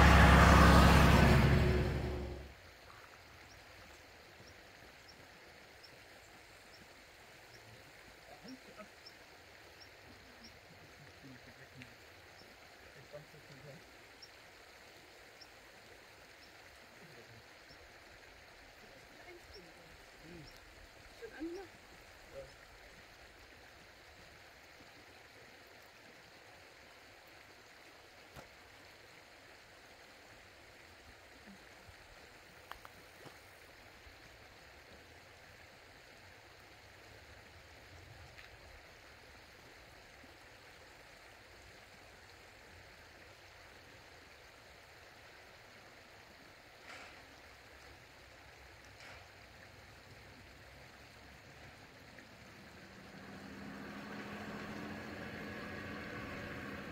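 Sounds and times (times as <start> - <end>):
faint stream flowing: 0.0 - 56.9
faint ticks: 32.6 - 33.5, 38.3 - 38.6, 46.8 - 47.4, 48.8 - 50.2.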